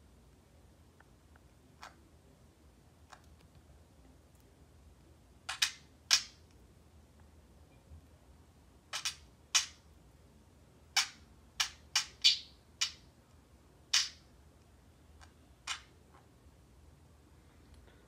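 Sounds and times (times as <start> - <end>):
parakeet chirping: 5.4 - 6.4, 8.9 - 9.8, 10.9 - 13.1, 13.9 - 14.3, 15.2 - 16.3.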